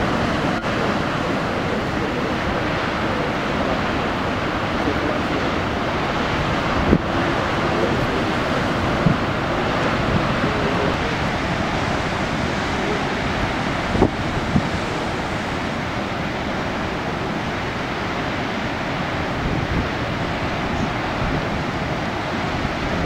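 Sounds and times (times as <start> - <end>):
heavy ocean surf rumbling: 0.0 - 23.0
wind buffeting microphone: 0.0 - 23.0.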